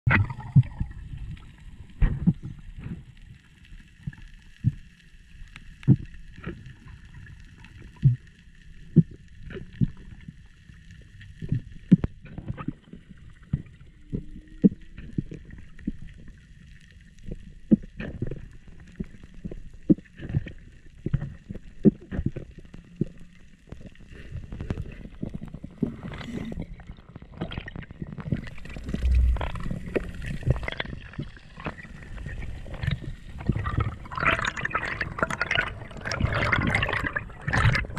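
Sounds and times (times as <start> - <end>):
muffled underwater knocks and clicks: 0.1 - 3.3, 3.9 - 5.0, 5.7 - 7.1, 7.7 - 10.4, 11.3 - 16.4, 17.2 - 37.9
rumbling rush of water and bubbles: 0.1 - 37.9
faint steady whine: 28.4 - 33.9.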